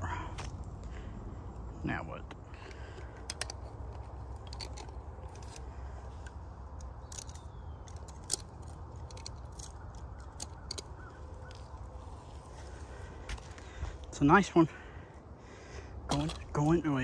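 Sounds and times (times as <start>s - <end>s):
steady low rumble: 0.0s - 17.0s
sharp clicks and ticks: 6.2s - 11.8s.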